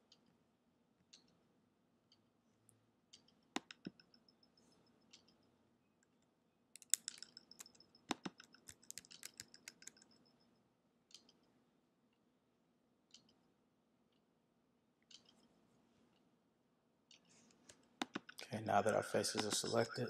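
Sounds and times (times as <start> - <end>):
computer mouse clicking: 3.1 - 4.2, 6.8 - 10.2, 11.1 - 11.5, 13.1 - 13.4, 15.1 - 15.5, 17.1 - 18.4, 19.3 - 19.8.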